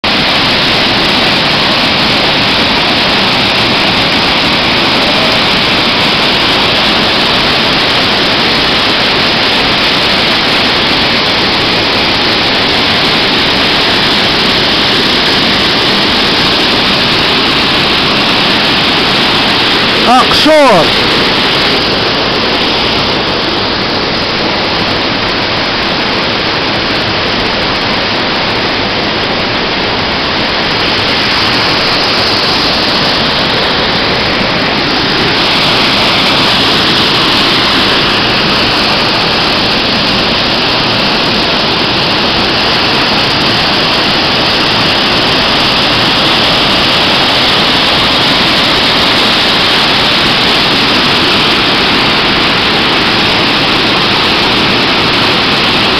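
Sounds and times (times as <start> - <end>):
waterfall rushing: 0.0 - 55.9.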